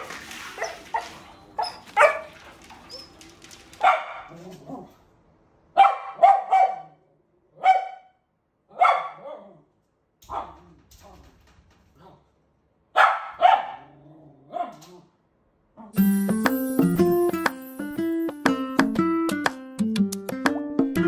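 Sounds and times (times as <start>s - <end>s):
dog barking: 0.5s - 2.5s, 3.8s - 4.9s, 5.8s - 7.0s, 7.6s - 9.6s, 12.9s - 15.0s.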